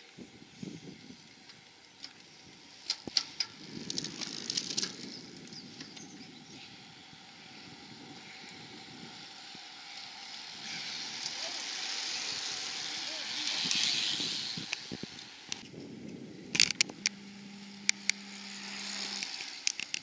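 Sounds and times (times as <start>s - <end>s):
bicycle tyres and freewheels hissing: 0.0s - 20.0s
sharp bicycle clicks: 1.4s - 6.2s, 8.5s - 15.7s, 16.5s - 20.0s.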